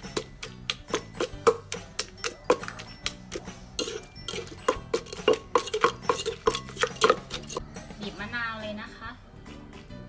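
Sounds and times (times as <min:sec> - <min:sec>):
pestle pounding in mortar: 0:00.0 - 0:07.6.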